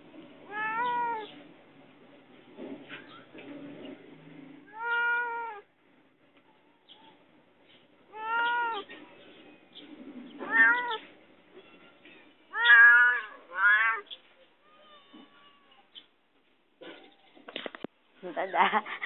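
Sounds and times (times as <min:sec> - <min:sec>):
cat meowing loudly: 0:00.5 - 0:01.3, 0:04.7 - 0:05.7, 0:08.1 - 0:08.9, 0:10.4 - 0:15.9.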